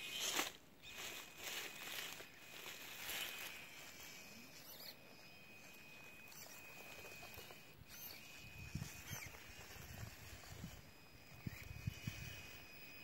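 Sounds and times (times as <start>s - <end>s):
thin high-pitched motor whine: 0.0s - 13.0s
toy truck tyres scratching grit: 0.0s - 13.0s.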